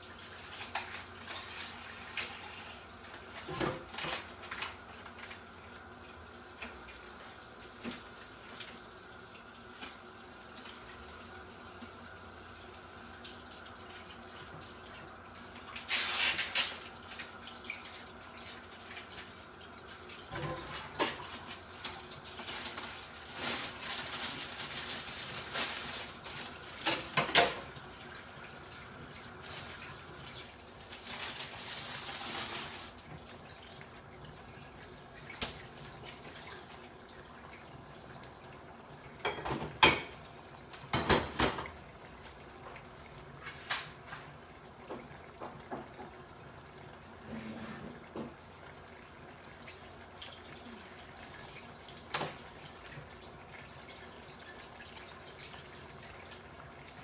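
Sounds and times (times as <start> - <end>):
tap water splashing into sink: 35.2 - 38.2, 39.1 - 46.4, 47.8 - 48.5, 49.6 - 53.4.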